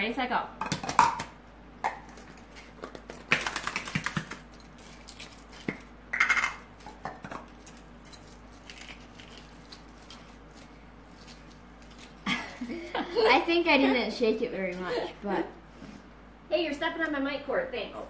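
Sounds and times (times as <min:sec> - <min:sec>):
eggshells cracking: 0:00.7 - 0:12.7
egg rattling in a shaken cup: 0:02.1 - 0:12.9.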